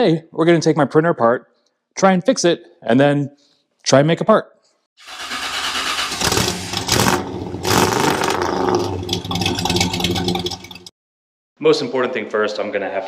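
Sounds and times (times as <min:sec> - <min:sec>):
engine starting and revving: 0:05.0 - 0:10.9.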